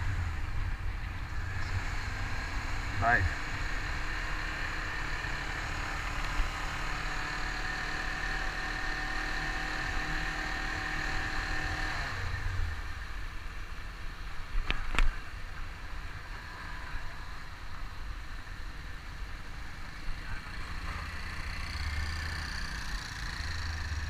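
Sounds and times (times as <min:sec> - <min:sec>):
motorcycle engine running: 0:20.0 - 0:24.0.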